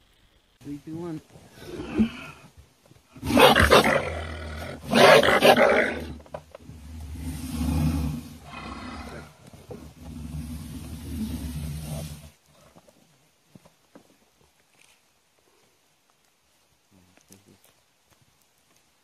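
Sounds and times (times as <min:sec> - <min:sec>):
animal growling: 0:01.5 - 0:02.5, 0:03.2 - 0:12.7
animal snarling: 0:01.5 - 0:02.5, 0:03.2 - 0:09.4, 0:10.0 - 0:12.3.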